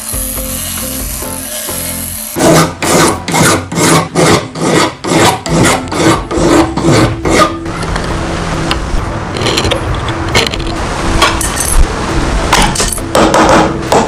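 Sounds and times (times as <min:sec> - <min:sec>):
hand file rasping on steel: 0:01.4 - 0:07.6.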